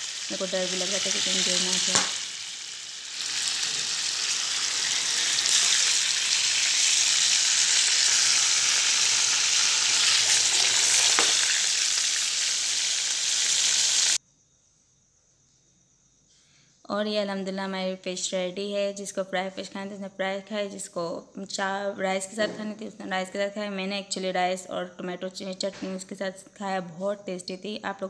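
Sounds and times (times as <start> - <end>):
fish sizzling in hot oil: 0.0 - 14.2.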